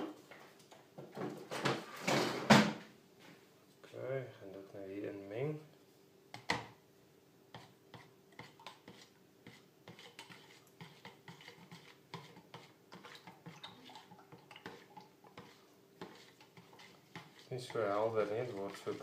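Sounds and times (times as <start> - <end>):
knife tapping and scraping jug: 7.5 - 19.0.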